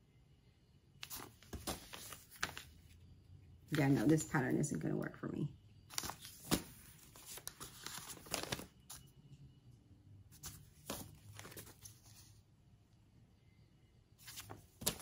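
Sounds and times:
paper envelopes rustling: 1.0 - 2.9, 3.7 - 4.4, 5.9 - 9.1, 10.4 - 12.4, 14.2 - 15.0.

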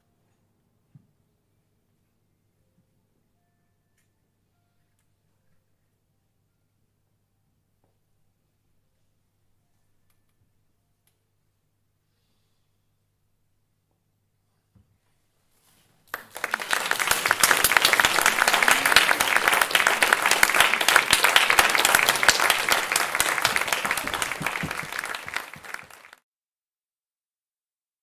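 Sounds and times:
audience applauding: 16.1 - 26.2.

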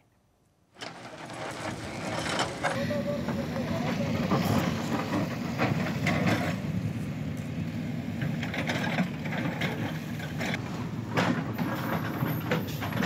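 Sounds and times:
diesel engine running: 0.9 - 13.0
knocks and clatters: 8.2 - 13.0.

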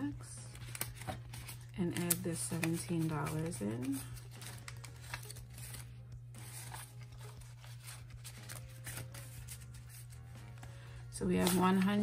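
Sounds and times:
banknotes rustling and crinkling: 0.4 - 12.0.

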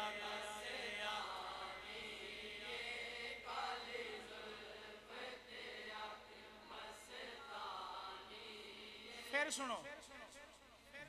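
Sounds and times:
congregation chanting: 0.0 - 9.5.

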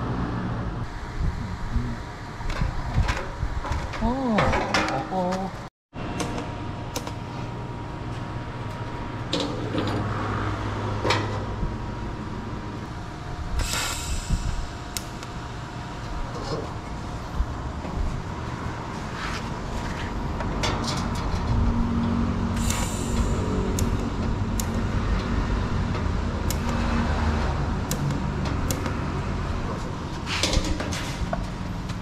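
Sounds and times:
short hiss: 13.6 - 14.7, 22.6 - 23.5.

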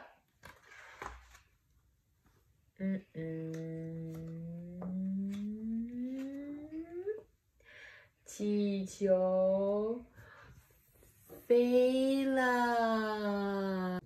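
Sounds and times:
woman humming: 2.8 - 7.3.

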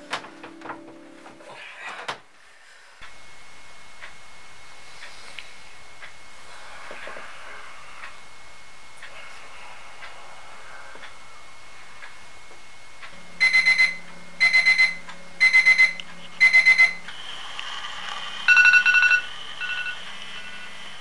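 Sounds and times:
ringing alarm with rapid chirps: 13.3 - 17.2, 18.4 - 21.0
quick high alarm beeps: 13.4 - 17.0.

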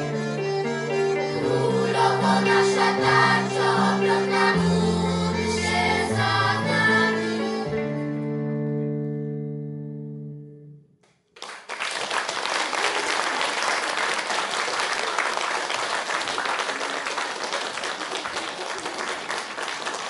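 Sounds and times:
children's choir chord: 1.1 - 8.0
audience applause: 11.4 - 20.0.

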